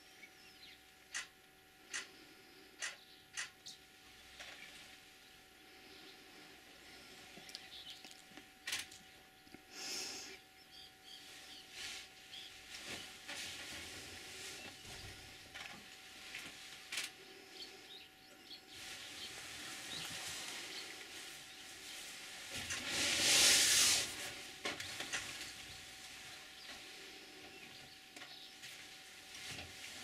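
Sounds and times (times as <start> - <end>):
hissing noise: 18.8 - 24.6.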